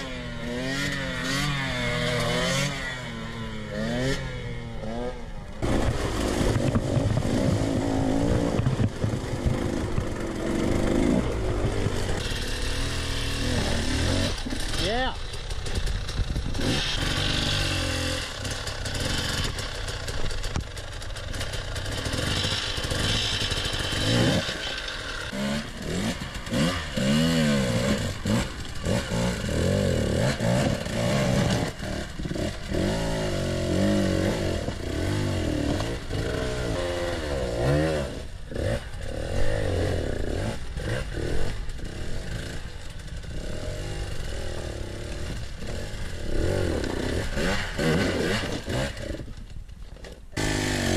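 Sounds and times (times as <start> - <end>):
dirt bike engine revving: 0.0 - 49.3, 50.4 - 50.9.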